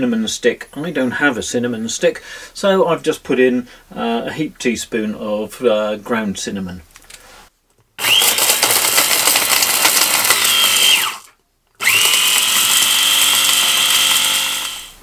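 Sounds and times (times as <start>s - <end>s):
electric spice grinder whining: 8.0s - 15.0s.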